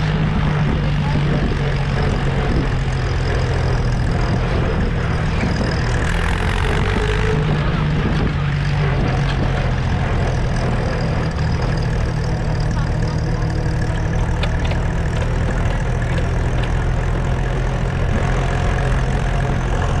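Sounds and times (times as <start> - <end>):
tractor engine running: 0.0 - 20.0.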